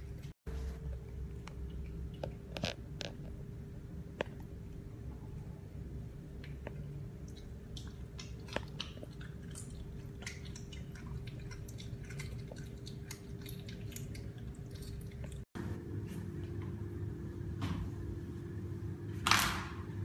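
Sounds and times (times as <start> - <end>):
steady low hum: 0.0 - 20.0
animal chewing raw meat: 6.6 - 15.5.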